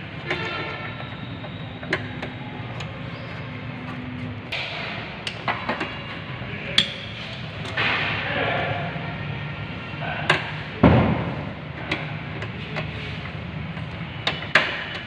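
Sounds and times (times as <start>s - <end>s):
spanner clicking on bolts: 13.8s - 15.0s.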